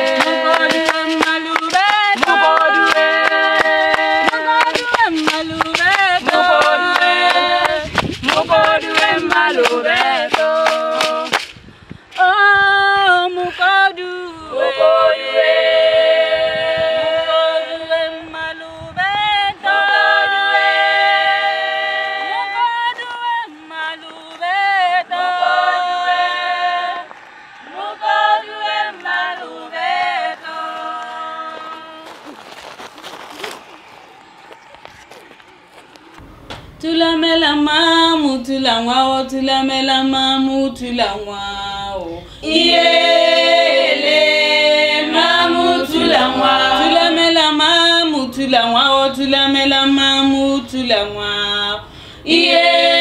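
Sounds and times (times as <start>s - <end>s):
women singing a cappella: 0.0s - 11.4s, 12.2s - 27.1s, 27.7s - 32.1s, 36.8s - 53.0s
hand claps: 0.0s - 12.3s.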